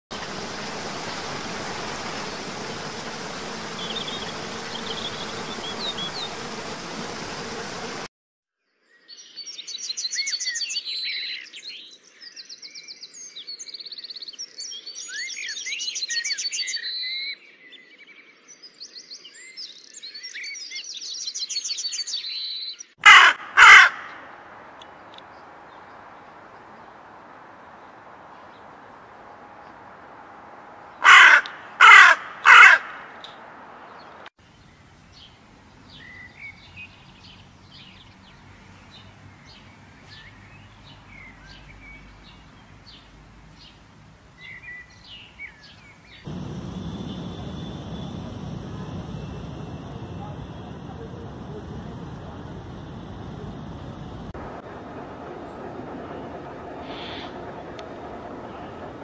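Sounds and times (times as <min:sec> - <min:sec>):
waterfall rushing: 0:00.1 - 0:08.1, 0:46.3 - 0:54.4
songbirds trilling and whistling: 0:00.4 - 0:06.5, 0:44.4 - 0:54.3
crow cawing: 0:23.0 - 0:24.3, 0:31.0 - 0:33.2, 0:46.3 - 0:52.0
faint bird chirps: 0:46.3 - 0:54.3.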